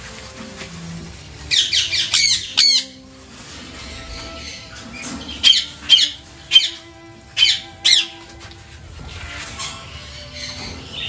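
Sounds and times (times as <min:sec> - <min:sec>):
parrots screeching: 0:01.4 - 0:03.0, 0:03.6 - 0:08.3, 0:09.4 - 0:11.0.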